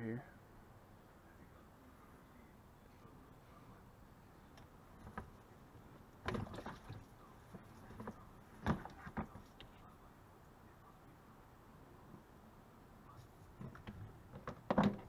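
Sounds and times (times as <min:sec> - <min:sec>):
radiator hose knocking and clattering: 0:05.0 - 0:05.4, 0:06.2 - 0:09.6, 0:13.6 - 0:15.0.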